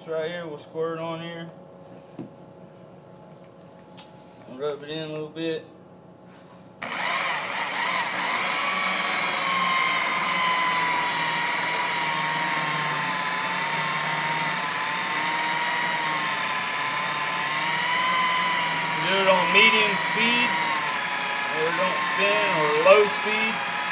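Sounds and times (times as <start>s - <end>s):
rotary polisher motor whine: 6.8s - 23.9s.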